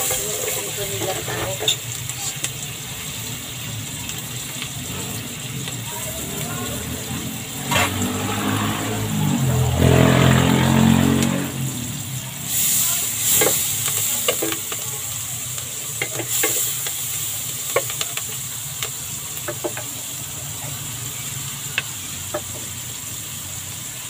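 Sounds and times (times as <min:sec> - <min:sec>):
vegetables sizzling in oil: 0:00.0 - 0:24.0.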